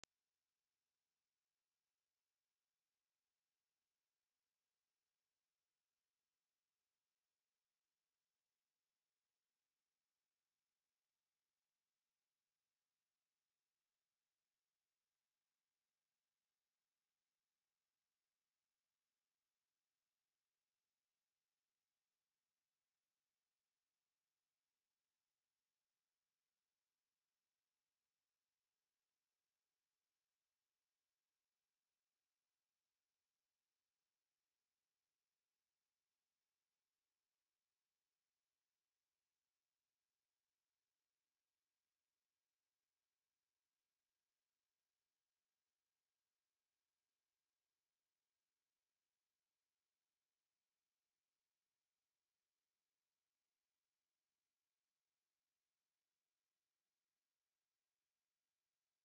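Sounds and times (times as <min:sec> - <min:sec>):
high-pitched sine test tone: 0:00.0 - 0:02.2.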